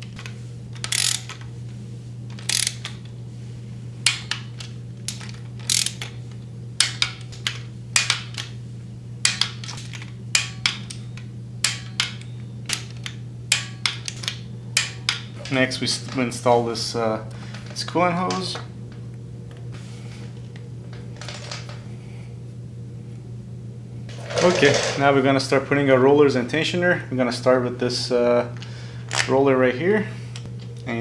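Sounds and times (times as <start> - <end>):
steady low hum: 0.0 - 31.0
ratcheting torque wrench clicking: 0.8 - 1.4, 2.3 - 3.1, 4.0 - 6.2.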